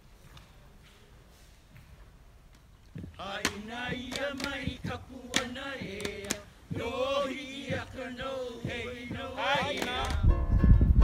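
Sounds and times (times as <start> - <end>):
gourd drum strikes: 3.3 - 10.2.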